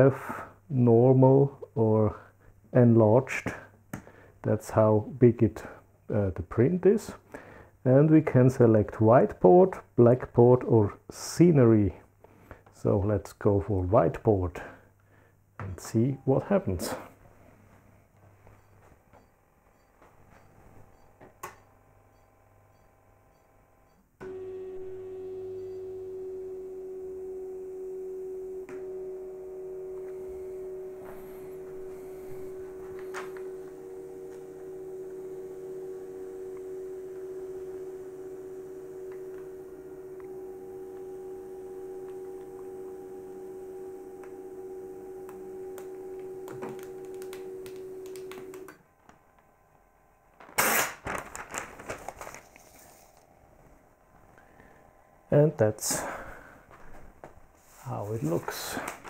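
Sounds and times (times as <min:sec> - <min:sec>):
thermal printer humming: 0:20.0 - 0:50.5, 0:51.1 - 0:59.0
paper crackling and rustling: 0:50.4 - 0:53.3, 0:58.3 - 0:59.0.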